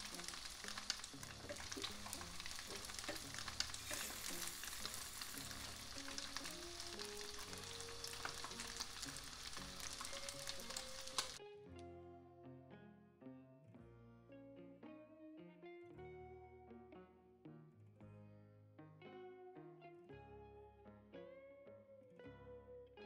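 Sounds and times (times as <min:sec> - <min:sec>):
oil sizzling in a pan: 0:00.0 - 0:11.4
soft background music: 0:00.0 - 0:23.0.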